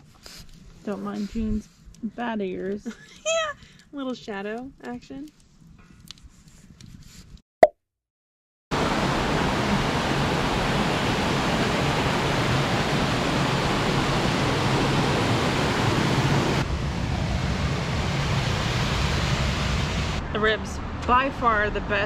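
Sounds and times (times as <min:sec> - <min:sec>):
waterfall rushing: 0:08.8 - 0:16.6.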